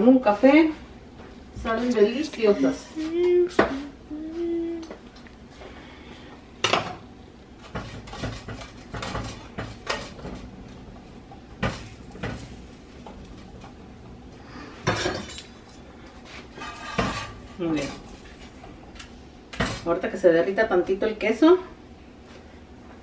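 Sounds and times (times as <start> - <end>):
dishes and utensils clinking: 14.8 - 15.8.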